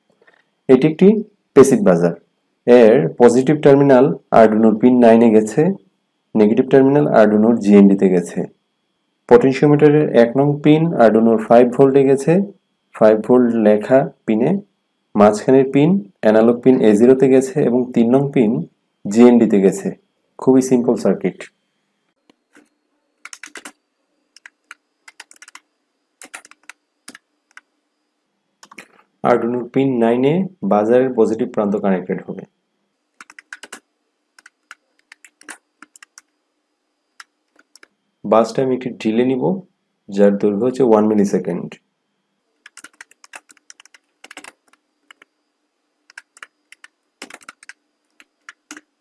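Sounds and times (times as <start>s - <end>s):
computer keyboard typing: 23.2s - 23.8s, 24.4s - 25.6s, 26.2s - 27.7s, 28.6s - 29.0s, 33.2s - 33.8s, 34.4s - 36.3s, 37.2s - 37.9s, 42.6s - 45.3s, 46.1s - 48.9s.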